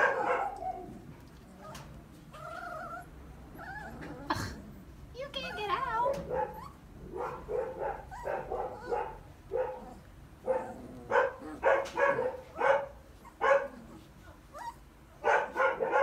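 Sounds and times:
puppy yipping and barking: 0.0 - 0.9, 5.4 - 16.0.

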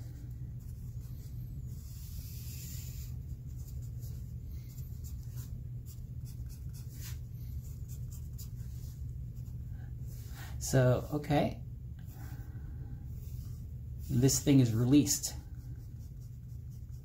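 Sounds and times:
steady low hum: 0.0 - 17.0
pencil scratching on paper: 1.7 - 8.8, 15.6 - 17.0.

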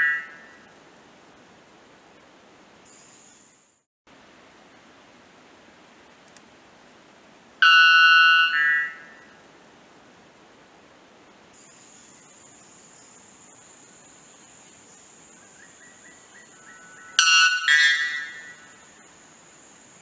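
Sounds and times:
steady hiss: 0.0 - 7.6, 8.4 - 20.0
bird call of two ringing notes: 7.6 - 9.0, 17.0 - 18.7.

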